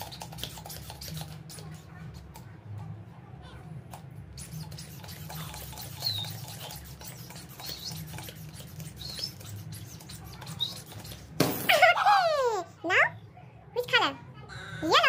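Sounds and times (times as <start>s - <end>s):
balloon pump squeaking: 0.0s - 2.4s, 3.9s - 11.9s.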